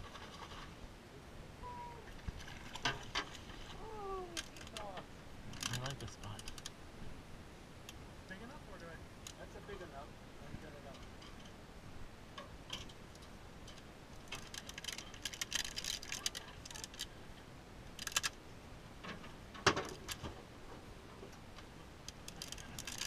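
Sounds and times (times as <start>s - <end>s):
fishing gear clicks and rattles: 4.3s - 6.8s, 12.7s - 17.2s, 17.9s - 18.4s, 19.1s - 20.4s, 22.0s - 23.0s.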